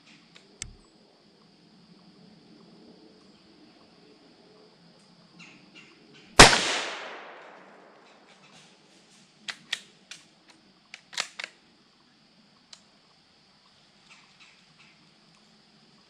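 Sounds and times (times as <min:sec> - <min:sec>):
rifle bolt metallic clicks: 0:06.4 - 0:08.0, 0:11.0 - 0:11.5
rifle shot with echo: 0:06.4 - 0:08.3.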